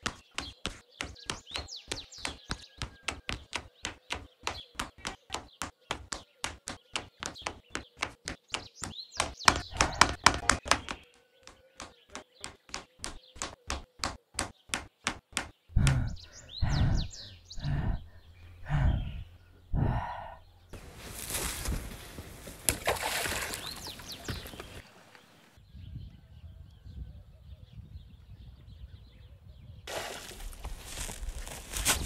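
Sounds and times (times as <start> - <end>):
footsteps on loose rock: 0.0 - 16.1, 21.1 - 24.8, 29.9 - 32.0
small birds chirping: 0.0 - 32.0.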